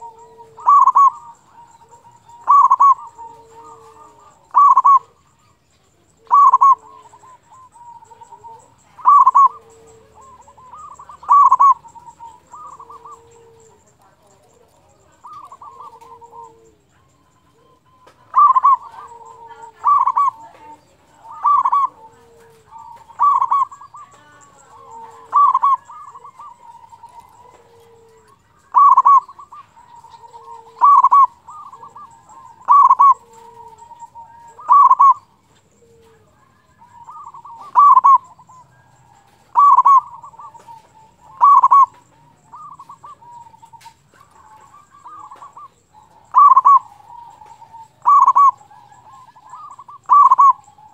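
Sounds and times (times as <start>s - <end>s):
dove cooing: 0.0s - 50.9s.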